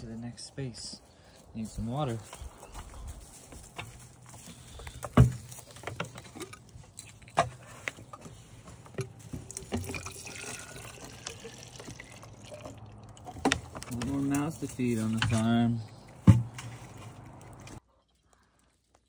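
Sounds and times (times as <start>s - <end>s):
knocks against wood and wire: 4.9s - 6.5s, 15.1s - 17.4s
water sloshing in bottle: 5.0s - 19.0s.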